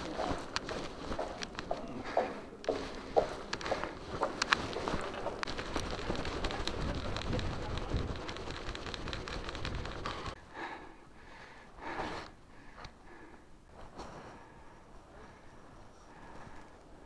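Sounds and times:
mountain bike riding rumble: 2.8s - 10.7s.

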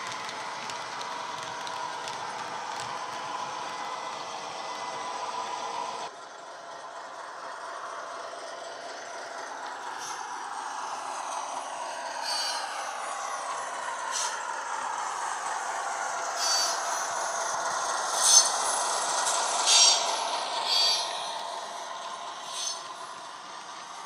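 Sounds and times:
model locomotive diesel engine sound: 0.0s - 24.0s
short high squeaks: 22.5s - 22.9s.

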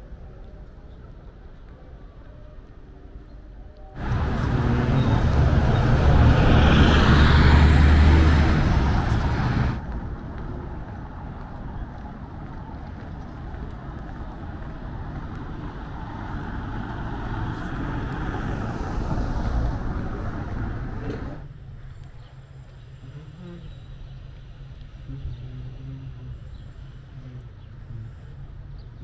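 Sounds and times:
city street background noise: 0.0s - 29.0s
coach engine drone: 4.0s - 21.5s.

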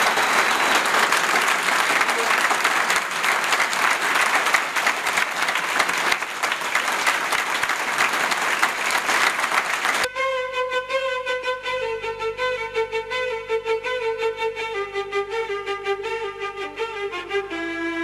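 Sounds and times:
audience applauding: 0.0s - 10.1s
instrumental music with held melody: 10.1s - 18.0s.

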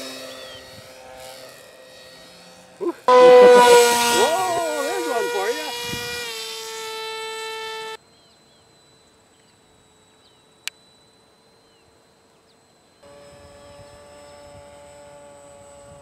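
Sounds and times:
model plane motor whining: 0.0s - 8.0s, 13.0s - 16.0s
faint bird chirps: 8.0s - 13.0s.

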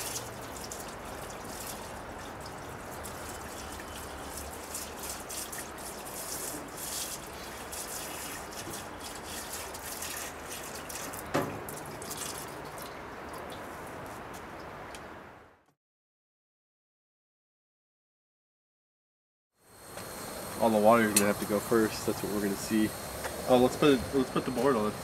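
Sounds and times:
liquid pouring into metal tank: 0.0s - 13.6s.

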